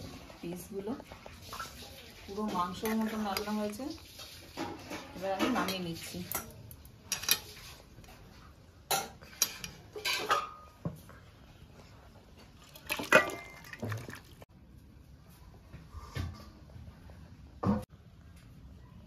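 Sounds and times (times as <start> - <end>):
metal pot and utensils clattering: 0.0 - 11.1, 12.3 - 14.5.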